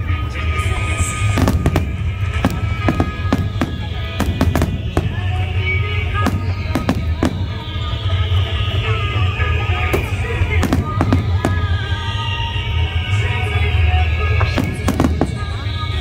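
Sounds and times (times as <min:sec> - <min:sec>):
music: 0:00.0 - 0:16.0
steady low rumble: 0:00.0 - 0:16.0
firework shells bursting: 0:01.2 - 0:05.4.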